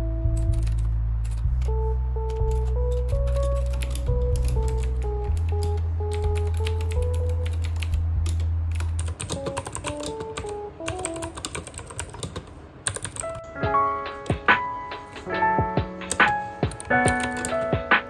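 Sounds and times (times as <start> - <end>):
lo-fi background music: 0.0 - 18.0
mechanical keyboard key clacks: 0.4 - 13.5.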